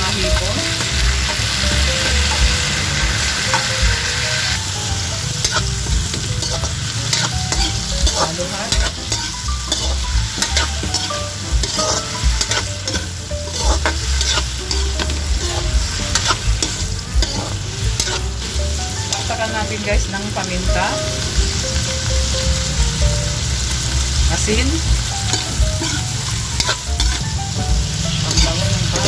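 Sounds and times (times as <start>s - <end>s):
shrimp sizzling in butter: 0.0s - 29.0s
utensil clicking and scraping pan: 5.4s - 18.2s.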